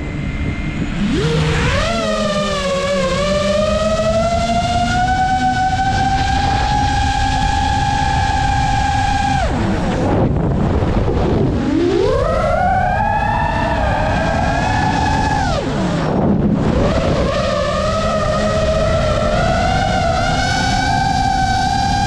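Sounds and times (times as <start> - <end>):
drone motors whining: 0.0 - 22.0.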